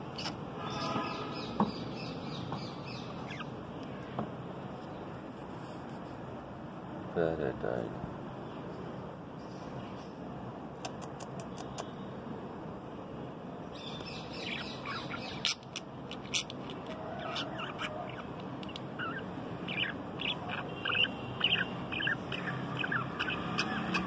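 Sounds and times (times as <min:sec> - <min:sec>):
parrots chirping and chattering: 0:00.0 - 0:03.6, 0:13.8 - 0:24.0
steady background noise: 0:00.0 - 0:24.0.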